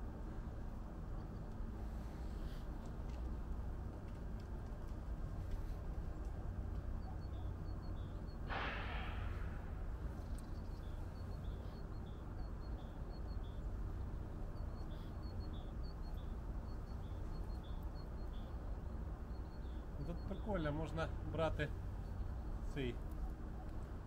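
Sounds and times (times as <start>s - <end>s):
low rumble: 8.5s - 11.4s.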